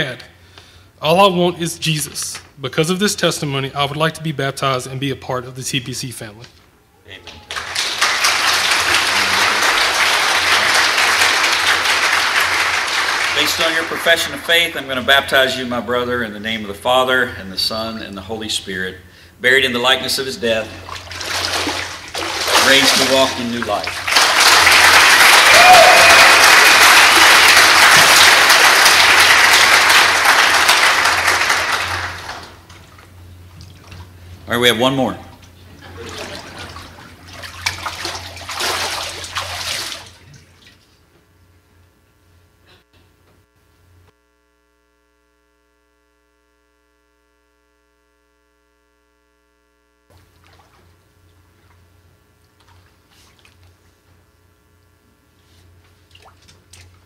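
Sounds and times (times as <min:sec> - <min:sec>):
electrical hum: 0:00.0 - 0:57.0
crowd applauding: 0:07.3 - 0:14.5, 0:22.3 - 0:32.6
water sloshing and dripping: 0:20.8 - 0:24.1, 0:32.2 - 0:34.3, 0:35.4 - 0:41.0, 0:50.2 - 0:51.8, 0:56.0 - 0:57.0.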